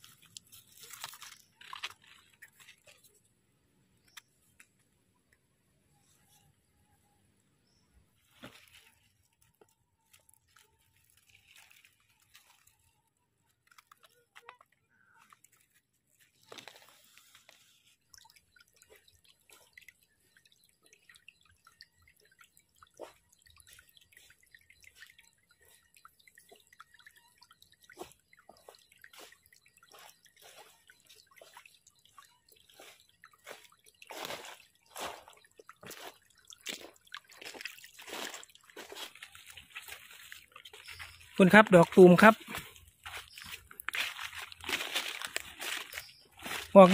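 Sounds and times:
footsteps crunching on leaves: 34.1 - 46.9.

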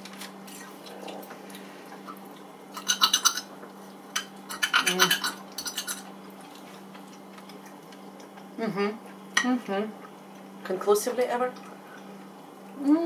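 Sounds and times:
steady low hum: 0.0 - 13.0
forks clinking on glass plates: 2.8 - 3.5, 4.2 - 6.1.

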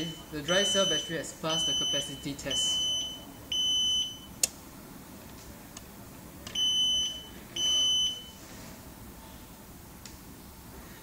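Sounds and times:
buzzer high beeps: 0.0 - 4.3, 6.6 - 8.4.

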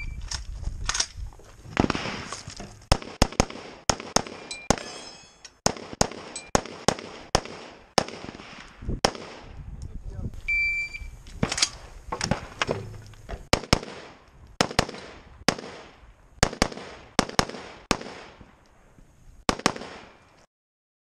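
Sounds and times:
rifle shots with echo: 2.9 - 4.8, 5.6 - 9.6, 13.5 - 18.5, 19.5 - 20.2.

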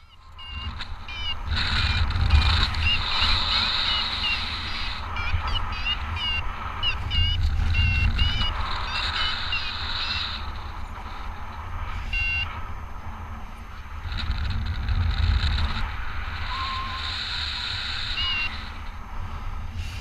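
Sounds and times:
variometer short beeps: 0.0 - 1.5, 2.8 - 10.3, 12.0 - 12.5
wind rushing over microphone: 0.0 - 20.0.

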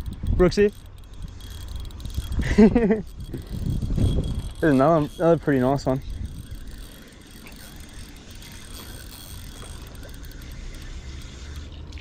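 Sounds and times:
wind rumble on microphone: 0.0 - 7.1
fishing reel whirring: 0.0 - 12.0.

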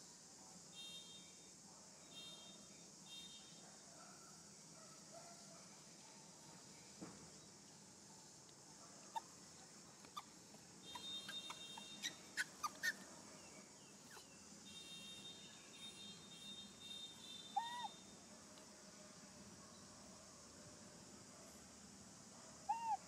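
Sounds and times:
steady high hiss: 0.0 - 3.7
birds chirping: 9.6 - 18.0
high bird trill: 10.1 - 18.2.

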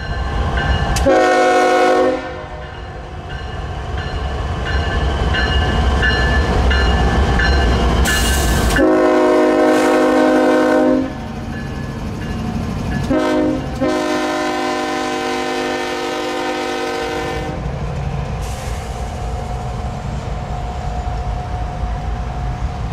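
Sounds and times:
locomotive air horn blasts: 1.0 - 2.7, 8.7 - 11.2, 13.1 - 17.6.

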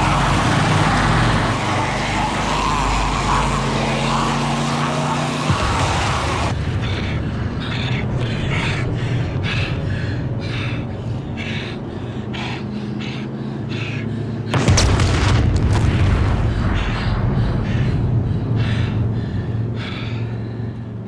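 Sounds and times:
explosion blast and rumble: 5.5 - 10.4, 14.5 - 19.1.

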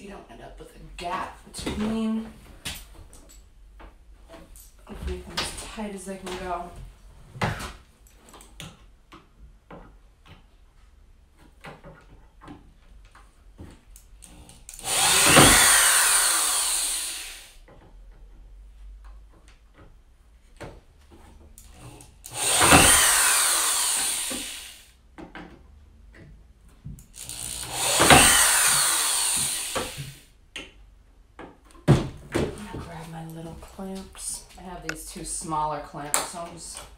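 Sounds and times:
cordless drill driving screws: 14.2 - 17.6, 21.6 - 24.9, 27.0 - 30.2.

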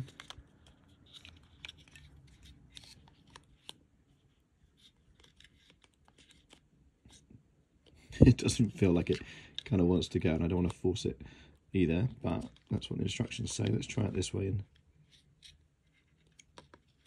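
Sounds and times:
faint plastic clicks and scrapes: 0.0 - 8.0, 12.2 - 17.0.

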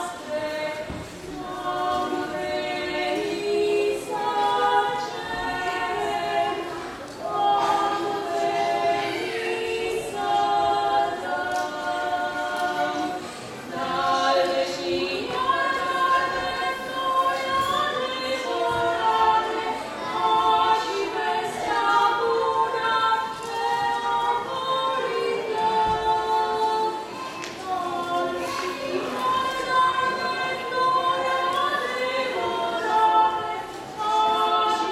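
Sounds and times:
women singing unaccompanied: 0.0 - 34.9.

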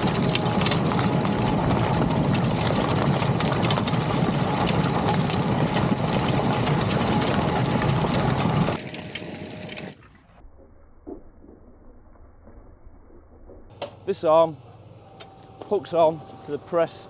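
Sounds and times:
tractor engine running: 0.0 - 10.1, 13.7 - 17.0
soil and stones scraping plough: 0.0 - 10.4, 13.7 - 17.0.

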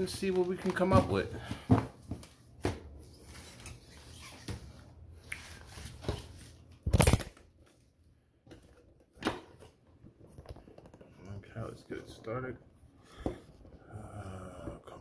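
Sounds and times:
cardboard packs rustling: 0.0 - 2.6.

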